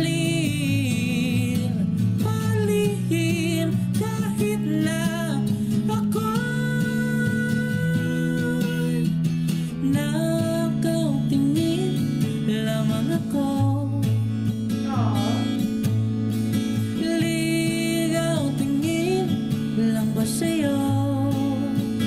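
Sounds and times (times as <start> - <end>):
young man singing ballad: 0.0 - 14.2, 14.8 - 15.8, 16.8 - 22.0
strummed acoustic guitar: 0.0 - 22.0
bass line: 14.8 - 15.8.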